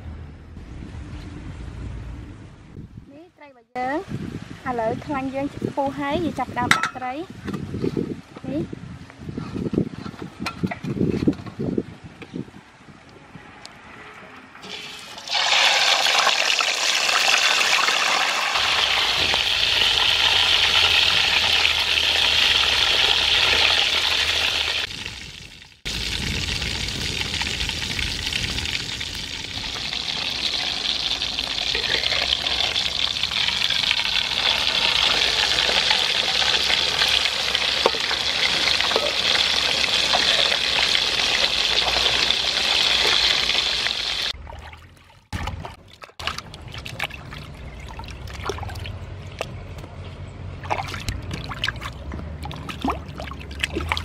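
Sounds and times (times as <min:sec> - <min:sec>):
fish sizzling in hot oil: 0:14.6 - 0:44.4
oil popping: 0:14.6 - 0:49.6.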